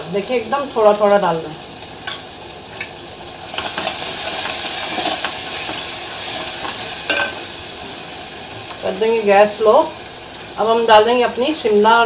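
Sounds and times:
spices sizzling in hot oil: 0:00.0 - 0:12.0
spoon scraping pan: 0:03.5 - 0:07.5.

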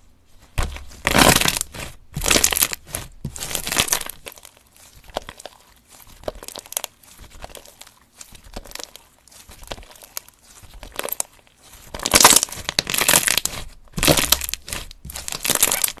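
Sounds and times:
slime crackling as it is stretched: 0:00.7 - 0:16.0.

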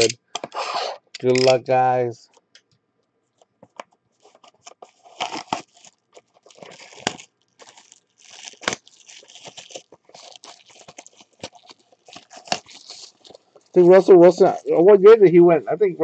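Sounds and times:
shrink wrap crinkling and tearing: 0:04.2 - 0:14.7
sharp snaps of wrap: 0:06.6 - 0:13.4.

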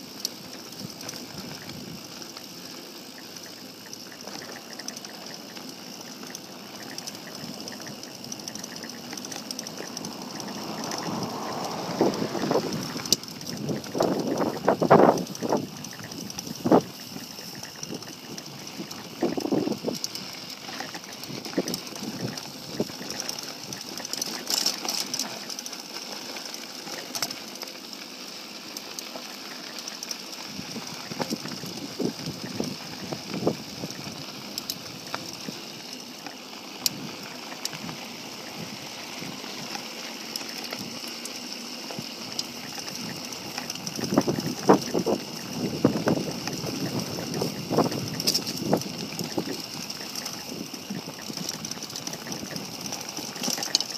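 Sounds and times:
bike clicks and rattles: 0:00.0 - 0:53.9
bike tyres crunching on gravel: 0:00.0 - 0:53.9.

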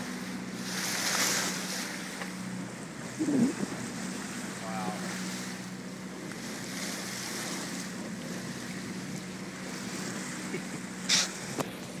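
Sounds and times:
wind and water rushing: 0:00.0 - 0:12.0
low steady hum: 0:01.5 - 0:07.0.

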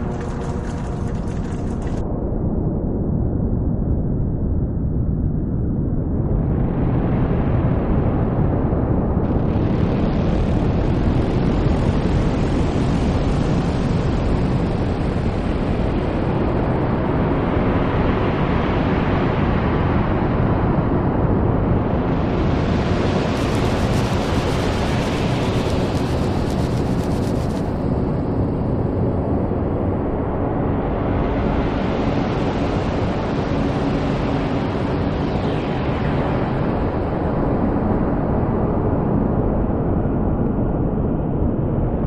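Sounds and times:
dense wash of noise: 0:00.0 - 0:02.2, 0:06.4 - 0:41.0.

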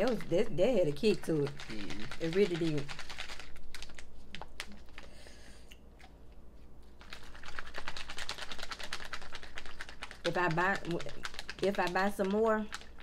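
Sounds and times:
plastic pouch crinkling: 0:01.6 - 0:05.1, 0:07.0 - 0:13.0.

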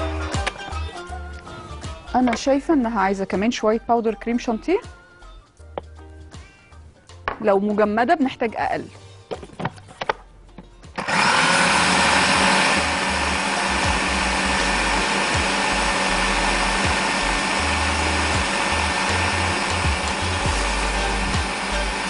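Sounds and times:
food processor running: 0:11.0 - 0:22.0.

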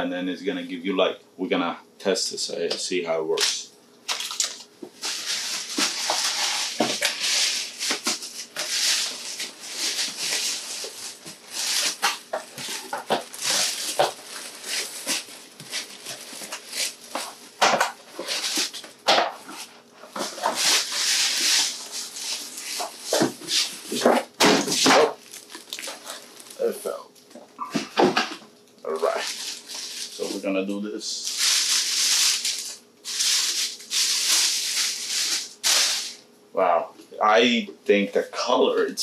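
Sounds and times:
packaging wrap crinkling: 0:04.1 - 0:27.0, 0:28.9 - 0:30.4, 0:31.2 - 0:36.2.

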